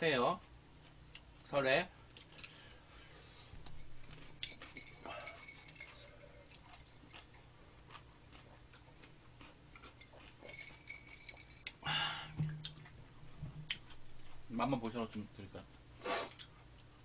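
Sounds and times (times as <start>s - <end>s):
person chewing: 3.6s - 11.8s, 12.5s - 14.5s, 16.1s - 17.0s.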